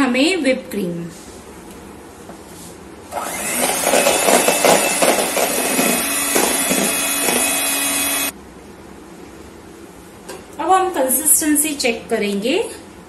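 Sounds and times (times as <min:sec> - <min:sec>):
electric hand mixer beating cream: 0:03.1 - 0:08.3.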